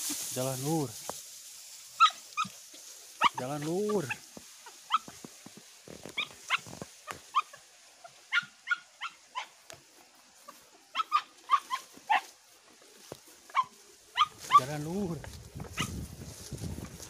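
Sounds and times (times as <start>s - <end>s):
hunting dog yipping: 2.0s - 2.6s, 3.2s - 5.2s, 6.1s - 9.6s, 10.4s - 12.4s, 13.5s - 14.8s, 15.7s - 16.0s.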